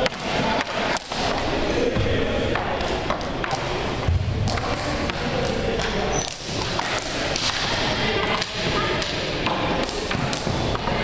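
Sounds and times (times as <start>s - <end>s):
hockey sticks striking shots: 0.0s - 11.0s
balls thudding off floor and walls: 1.0s - 8.6s.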